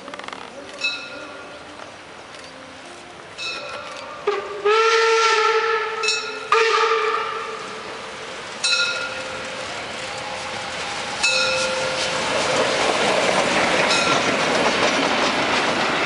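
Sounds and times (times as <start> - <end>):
steam locomotive whistle blasts: 4.0 - 7.9.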